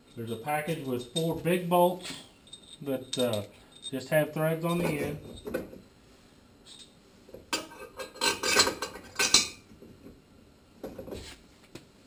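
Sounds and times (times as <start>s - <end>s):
metal bolts clinking and rattling: 0.0s - 5.8s.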